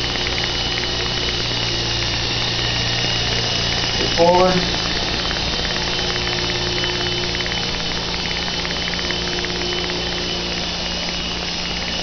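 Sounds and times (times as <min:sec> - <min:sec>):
model rotorcraft motor whine: 0:00.0 - 0:12.0.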